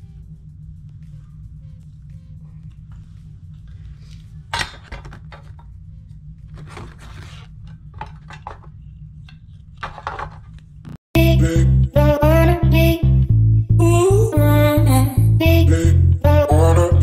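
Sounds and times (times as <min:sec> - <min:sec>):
scraping and rustling: 0:06.4 - 0:10.8.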